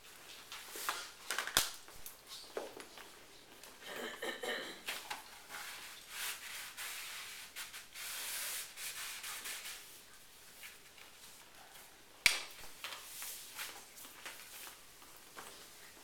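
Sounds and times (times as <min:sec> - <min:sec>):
rubbing against paper sheet: 0:05.4 - 0:10.1.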